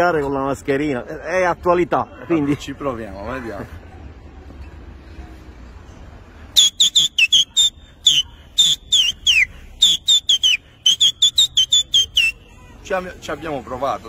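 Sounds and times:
man whistling short high notes: 0:06.6 - 0:12.4.

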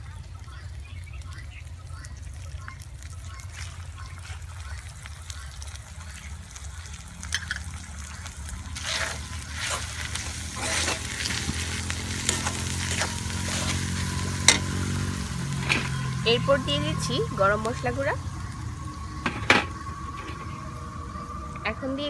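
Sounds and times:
food frying in oil: 0:00.0 - 0:22.0
low hum: 0:00.0 - 0:22.0
metal spatula scraping pan: 0:08.8 - 0:14.8.

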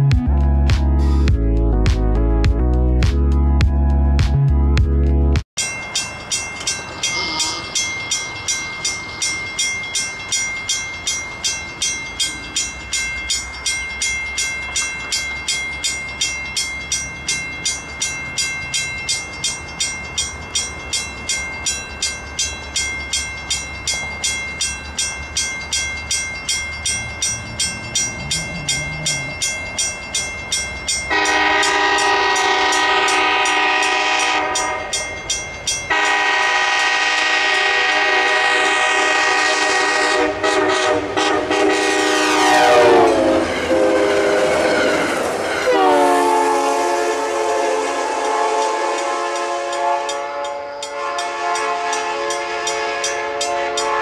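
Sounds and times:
crossing bell ringing: 0:05.6 - 0:54.0
train wheel noise: 0:05.6 - 0:54.0
train horn blasts: 0:31.1 - 0:35.0, 0:35.9 - 0:54.0.

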